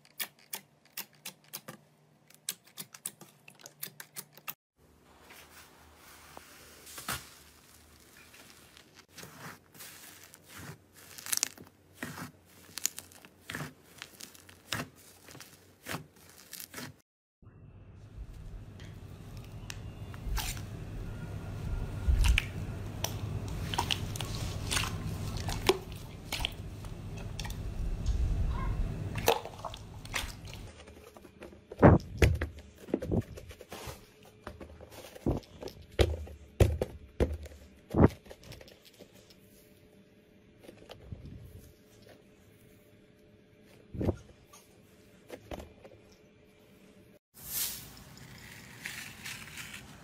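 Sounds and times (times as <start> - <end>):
slime popping and crackling: 10.6 - 14.8.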